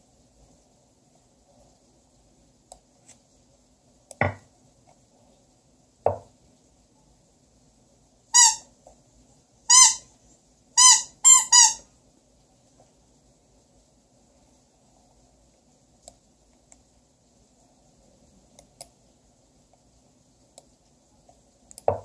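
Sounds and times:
squeaky toy squeaking: 8.4 - 8.7, 9.7 - 10.1, 10.8 - 11.8.

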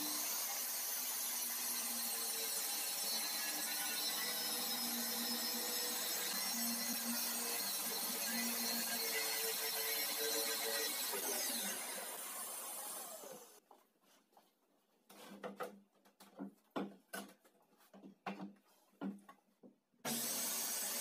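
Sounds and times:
loud power tool noise: 0.0 - 13.6, 20.1 - 21.0.

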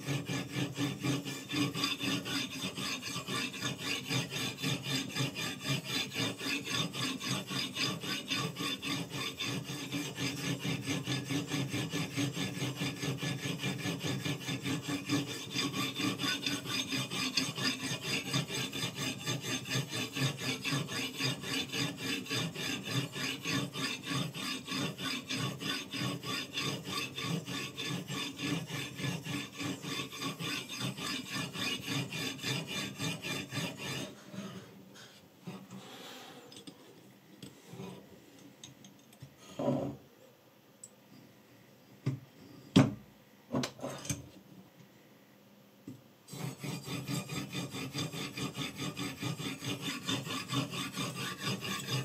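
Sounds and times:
knife sharpener rasping on blade: 0.0 - 34.3, 46.3 - 52.0.

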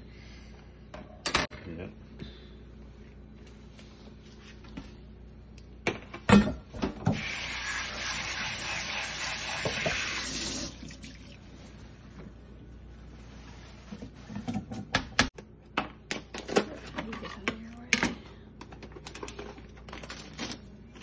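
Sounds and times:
faucet water running into sink: 7.1 - 11.4.

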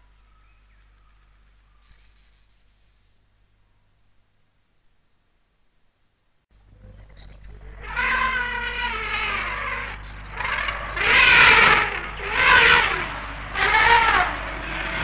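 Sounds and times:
low tape hum: 0.0 - 15.0
elephants trumpeting: 6.7 - 15.0.

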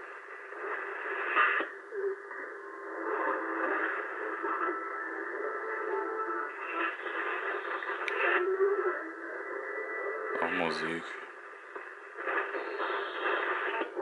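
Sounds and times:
radio tones: 10.4 - 11.3
shortwave radio broadcast from loudspeaker: 10.4 - 14.0.

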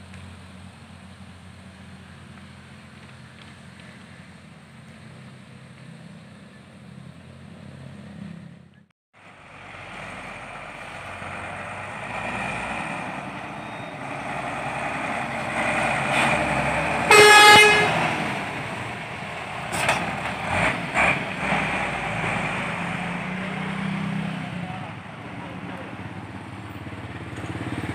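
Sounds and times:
diesel truck engine driving past: 0.0 - 27.9
truck horn blast: 16.2 - 18.6.

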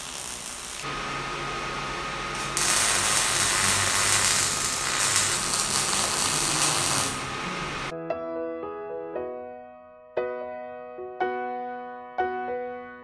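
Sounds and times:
welding arc hiss: 0.0 - 1.0, 2.1 - 7.9.

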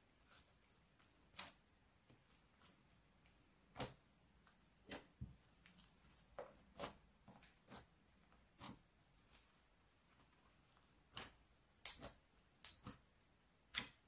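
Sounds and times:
slime clicking and popping: 11.1 - 13.0.

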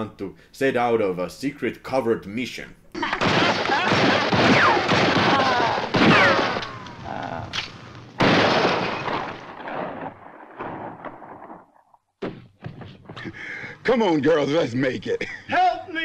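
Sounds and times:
gunshots volley: 3.0 - 12.6
man yelling: 15.5 - 16.0.

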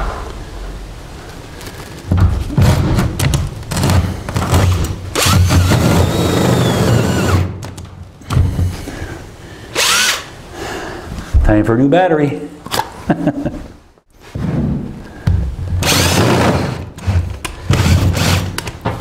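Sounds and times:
cordless drill boring: 4.6 - 7.5, 9.8 - 10.3, 15.8 - 16.4, 17.7 - 18.6.

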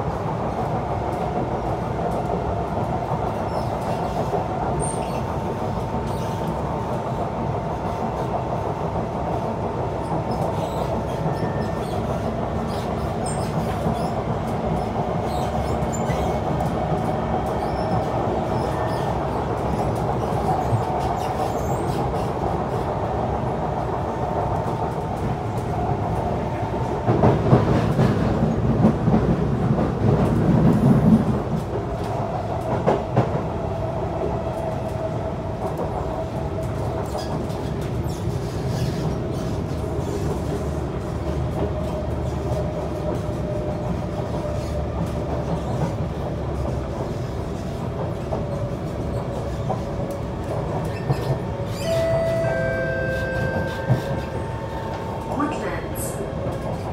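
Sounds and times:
continuous train whine: 0.0 - 56.9
train wheels rumbling on rails: 0.0 - 56.9.

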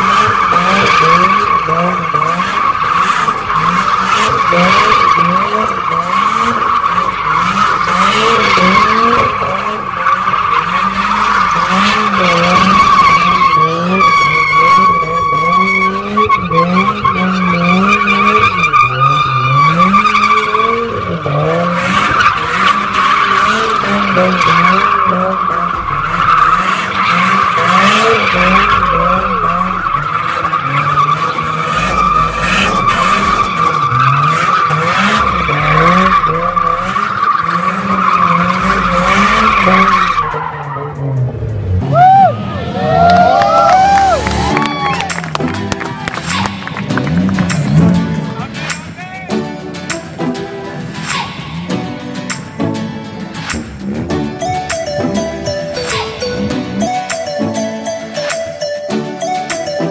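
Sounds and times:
car engine revving: 0.0 - 59.1
tyres screeching: 0.0 - 59.9.

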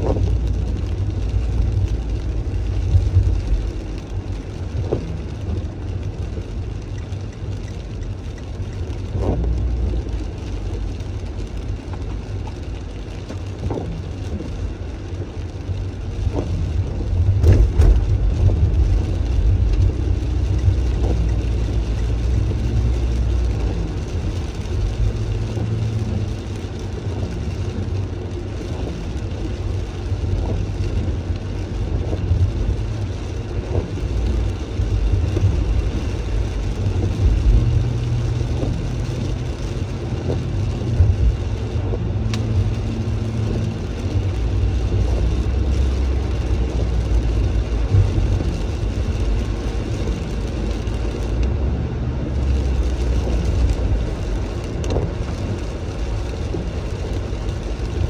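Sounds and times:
car engine and road rumble: 0.0 - 58.0
tyres hissing on wet road: 0.0 - 58.0
faint ticks: 42.2 - 44.1.

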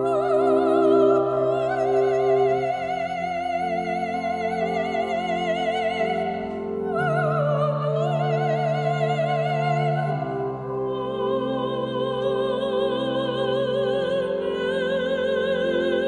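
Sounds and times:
soprano singing operatic notes: 0.0 - 16.0.

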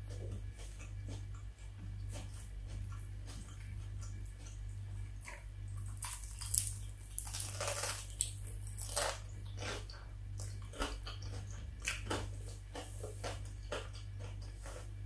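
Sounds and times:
chewing: 0.0 - 15.0
steady low hum: 0.0 - 15.0
crunching bites of fried chicken: 0.2 - 15.0.

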